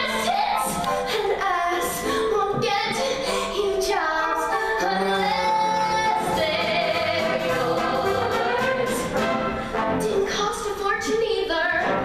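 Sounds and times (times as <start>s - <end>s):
woman singing: 0.0s - 9.2s, 10.0s - 12.0s
instrumental accompaniment: 0.1s - 10.7s.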